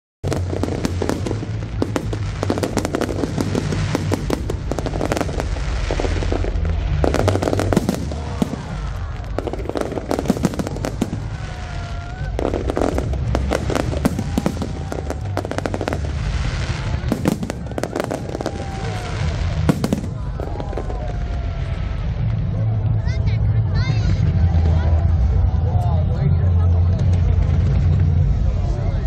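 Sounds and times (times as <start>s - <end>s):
fireworks bursting: 0.2s - 23.0s
low rumble: 0.2s - 29.0s.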